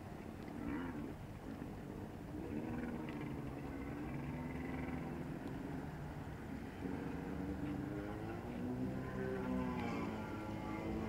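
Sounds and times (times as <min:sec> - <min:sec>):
motorboat engine running: 0:00.0 - 0:11.0
water: 0:00.0 - 0:11.0.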